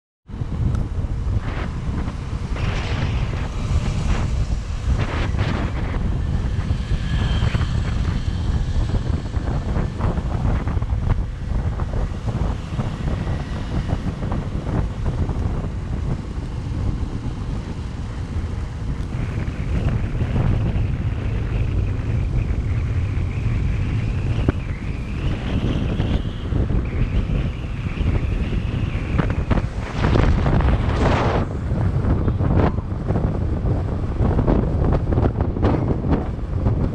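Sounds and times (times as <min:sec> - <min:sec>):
road and traffic noise: 0:00.3 - 0:36.9
wind buffeting microphone: 0:00.3 - 0:36.9
thin high whine: 0:01.3 - 0:15.6.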